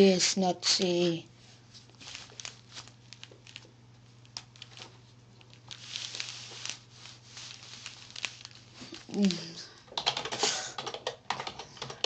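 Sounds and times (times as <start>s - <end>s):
low electrical hum: 0.0s - 12.0s
short rustle: 5.7s - 9.5s.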